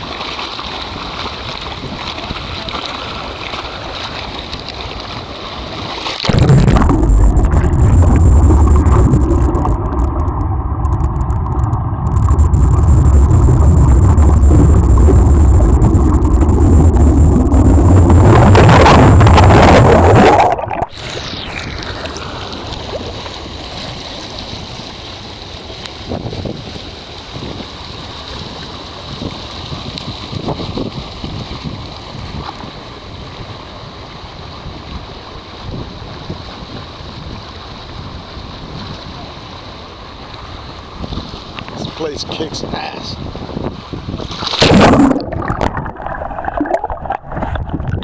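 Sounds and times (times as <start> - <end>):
pool water splashing: 0.0 - 48.0
underwater rumble of churning water: 0.0 - 48.0
wind on microphone: 6.3 - 24.8, 25.9 - 39.5, 40.6 - 48.0.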